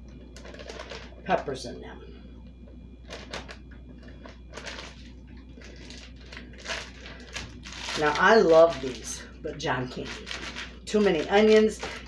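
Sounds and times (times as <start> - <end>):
plastic crinkling and rustling: 0.2 - 1.3, 3.0 - 12.0.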